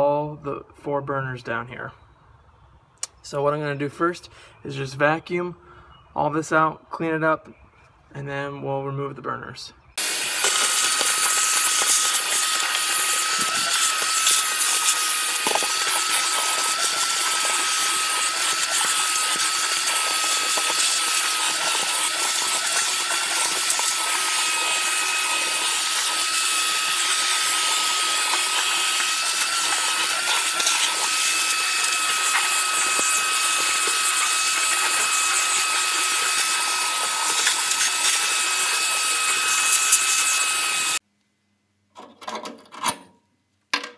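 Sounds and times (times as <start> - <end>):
vacuum cleaner running: 10.0 - 41.0.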